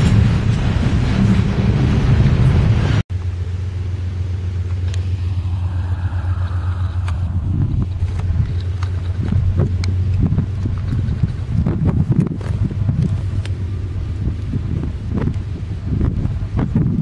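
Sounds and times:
freight train locomotive rumble: 0.0 - 17.0
wind on microphone: 4.9 - 17.0.

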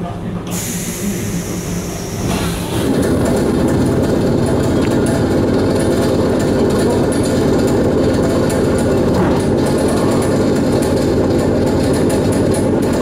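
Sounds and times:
train rumble and hum: 0.0 - 13.0
pneumatic door hiss: 0.5 - 2.9.

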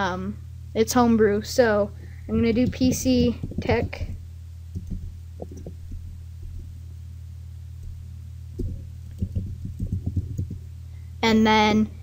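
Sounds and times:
low electrical hum: 0.0 - 12.0
keyboard keystrokes: 4.8 - 6.0, 8.6 - 10.6.

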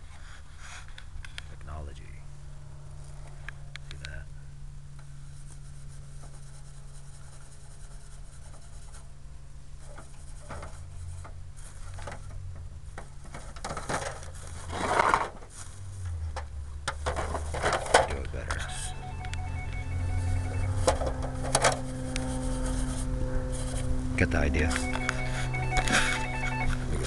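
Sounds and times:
fingers scraping a hubcap: 5.2 - 9.2, 9.8 - 12.3, 21.3 - 24.8.

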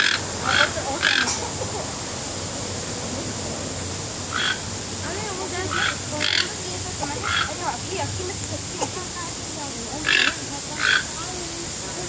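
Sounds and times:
toucan croaking calls: 0.0 - 2.0, 4.1 - 11.5.

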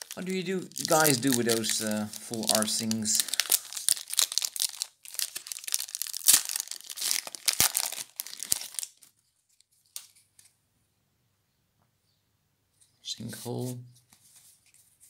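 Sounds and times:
cards handled ticking: 0.0 - 9.0
foil wrapper tearing and crinkling: 0.0 - 9.2.

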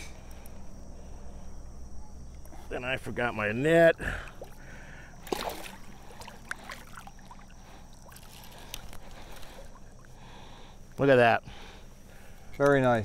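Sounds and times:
water sloshing and splashing: 4.0 - 10.4.

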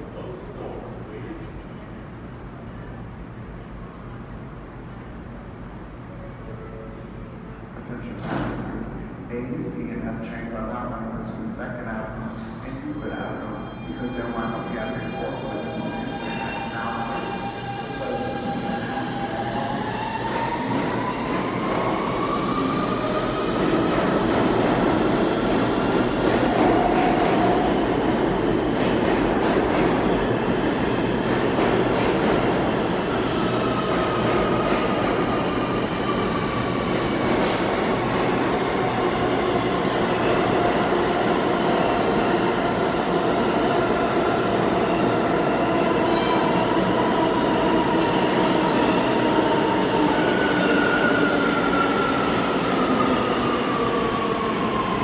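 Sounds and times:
train wheels rumbling on rail: 15.9 - 42.2.

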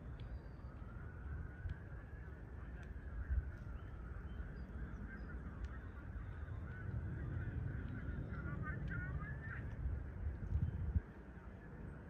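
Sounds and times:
jet airliner passing overhead: 5.3 - 10.2.

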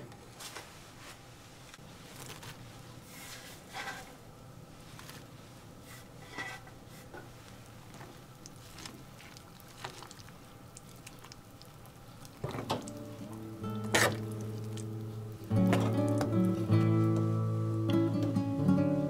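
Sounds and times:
acoustic guitar music: 12.6 - 19.0
dishes and utensils tapping: 15.6 - 16.4.

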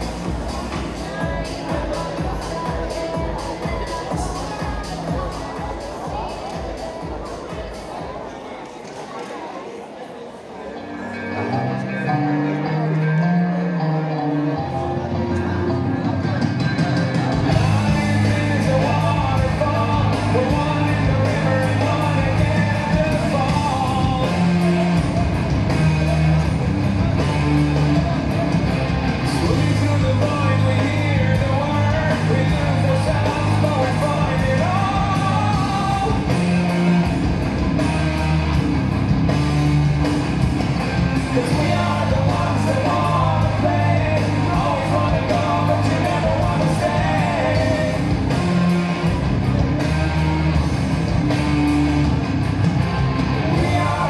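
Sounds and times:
steady bass line: 0.0 - 7.8, 11.2 - 54.0
rock song: 0.0 - 8.0, 11.0 - 54.0
person singing: 0.0 - 8.1, 11.2 - 38.2, 40.8 - 50.2, 52.8 - 54.0
electric guitar: 10.7 - 54.0.

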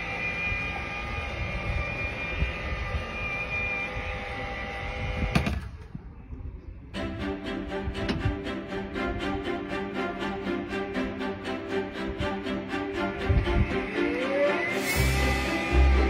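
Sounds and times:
mechanism whining: 0.0 - 7.4, 12.2 - 16.0
music: 7.0 - 16.0
low rumble: 12.0 - 14.3.

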